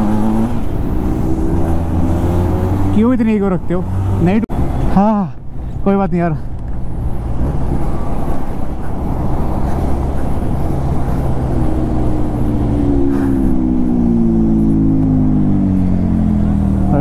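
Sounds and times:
motorcycle engine: 0:00.0 - 0:05.1
wind rumbling on microphone: 0:06.5 - 0:16.8.

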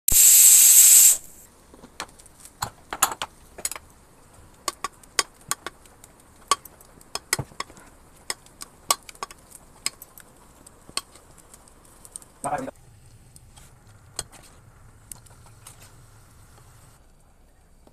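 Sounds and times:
pressure cooker steam hiss: 0:00.1 - 0:01.5.

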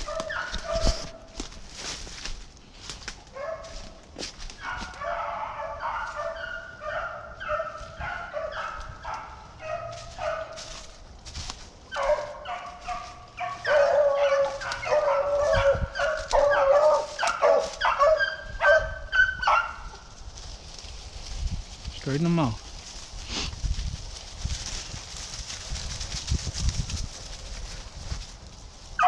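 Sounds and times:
beagles baying: 0:00.0 - 0:01.4, 0:03.3 - 0:11.0, 0:11.8 - 0:20.2.

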